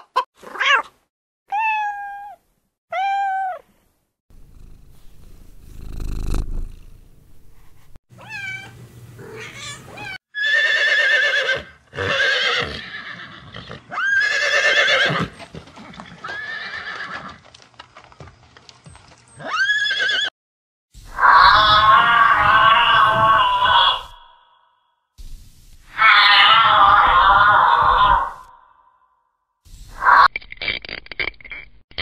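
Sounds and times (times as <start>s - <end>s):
horse whinnying: 10.4s - 17.4s, 19.4s - 20.3s, 21.2s - 24.2s, 26.0s - 28.5s.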